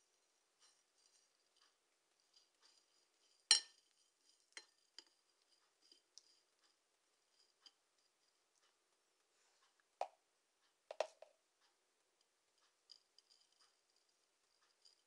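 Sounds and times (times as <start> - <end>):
teaspoon clinking on china plate: 2.4 - 5.2.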